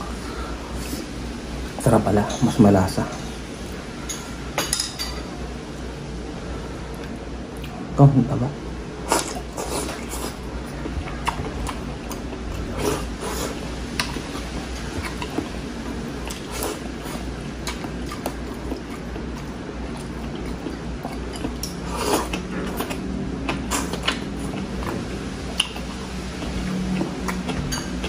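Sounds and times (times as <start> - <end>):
steady low hum: 0.0 - 28.0
chewing with wet smacks: 6.9 - 7.8, 9.1 - 28.0.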